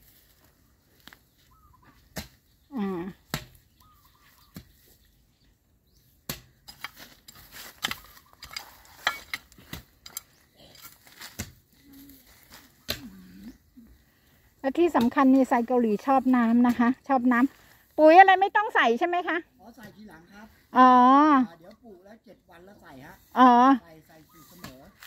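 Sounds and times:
hoe chopping soil: 2.0 - 5.0, 6.1 - 11.7, 12.4 - 13.3, 24.5 - 25.0.

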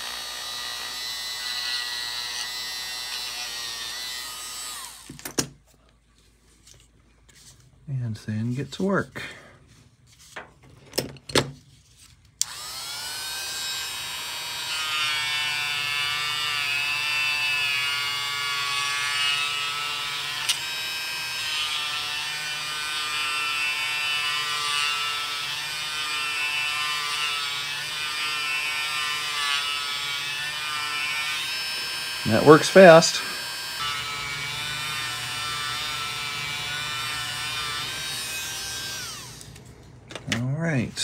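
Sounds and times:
rotary tool whining: 0.0 - 5.4, 12.4 - 40.2.

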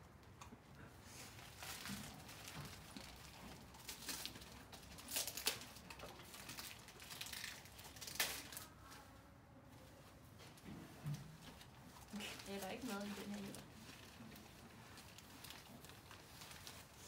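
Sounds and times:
wrapping paper crinkling and tearing: 1.1 - 9.0, 11.6 - 17.0.

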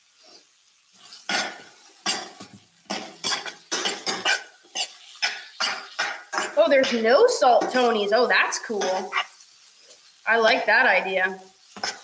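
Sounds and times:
metal spoon scraping a skillet: 1.0 - 10.1, 11.6 - 12.0.

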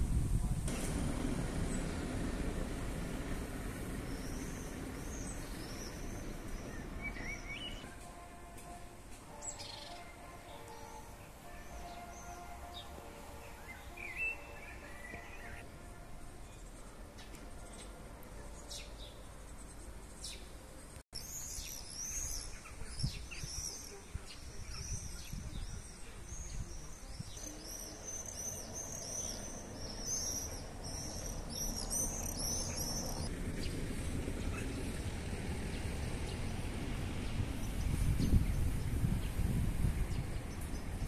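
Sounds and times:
wind rumbling on microphone: 0.0 - 7.8, 22.7 - 27.6, 30.6 - 41.0
songbirds chirping: 0.7 - 41.0.

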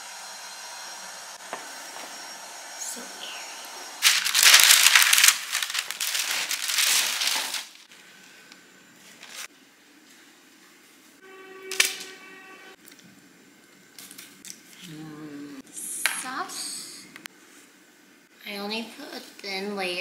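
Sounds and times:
parchment paper rustling: 4.0 - 8.0, 9.0 - 9.5.

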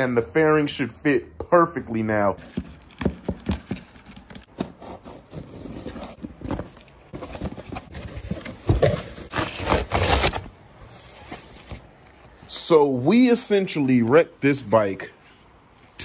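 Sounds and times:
foam packing sheet rustling: 2.4 - 12.0.

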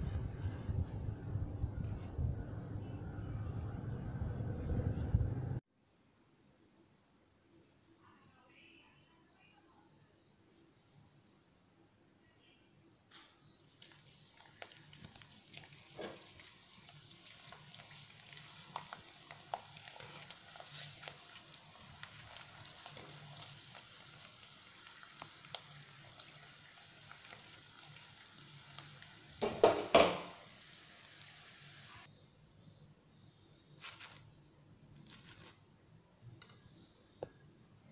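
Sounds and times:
oil sizzling and crackling: 13.5 - 32.1.

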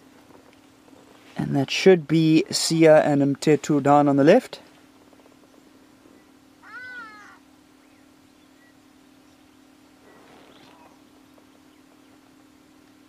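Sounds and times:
faint steady hum: 0.0 - 13.0
mewing animal call: 6.6 - 7.5.

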